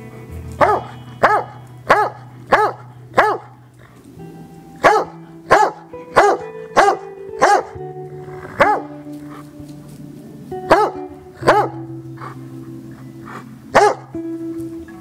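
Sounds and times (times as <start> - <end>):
background music: 0.0 - 15.0
dog barking: 0.6 - 3.6, 4.8 - 7.8, 8.5 - 9.5, 10.7 - 12.4, 13.2 - 14.2.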